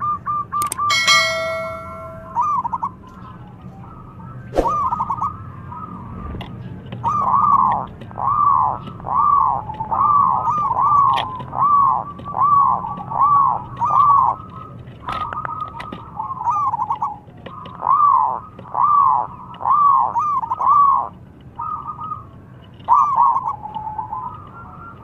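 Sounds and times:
sharp clicks: 0:00.6 - 0:00.9.

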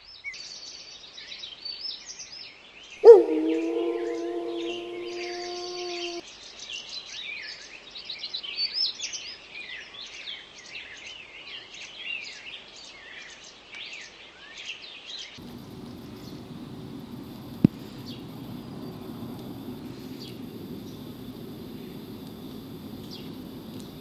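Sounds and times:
low steady noise: 0:03.0 - 0:06.2, 0:15.4 - 0:24.0
small birds chirping: 0:03.0 - 0:06.2, 0:15.4 - 0:24.0
wolf howl: 0:03.0 - 0:06.2.

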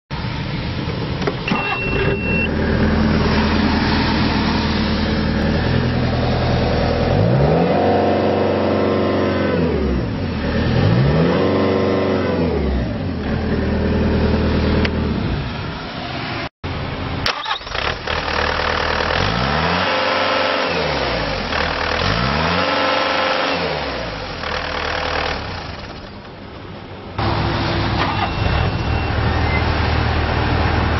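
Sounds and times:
diesel engine revving: 0:00.2 - 0:16.4, 0:17.2 - 0:26.1, 0:27.2 - 0:30.9
short high beep: 0:01.5 - 0:02.5, 0:28.0 - 0:29.7.

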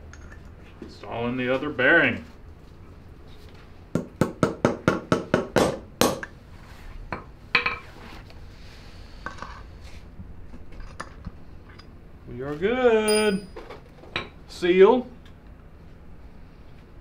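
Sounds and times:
hammer striking metal socket: 0:13.1 - 0:13.6.

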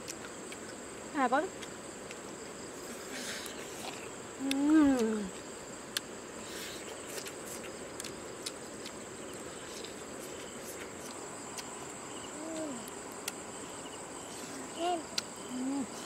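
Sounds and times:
crickets chirring: 0:00.0 - 0:16.0
person humming: 0:12.3 - 0:13.0, 0:14.5 - 0:16.0.

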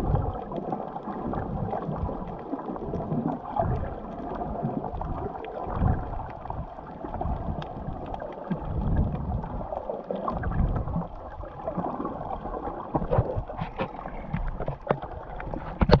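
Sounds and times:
muffled underwater water sloshing: 0:00.0 - 0:16.0
faint clicks: 0:07.5 - 0:08.5.

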